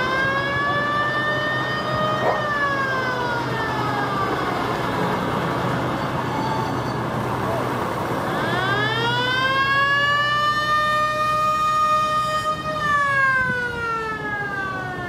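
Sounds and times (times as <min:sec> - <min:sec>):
truck engine driving past: 0:00.0 - 0:10.6.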